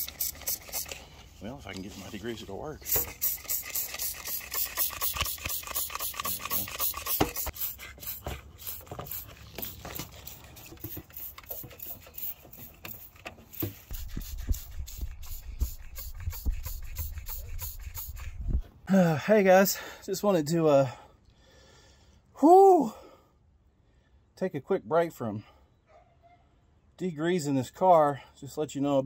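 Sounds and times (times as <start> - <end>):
spray bottle hissing: 0.0 - 1.1, 2.8 - 18.5.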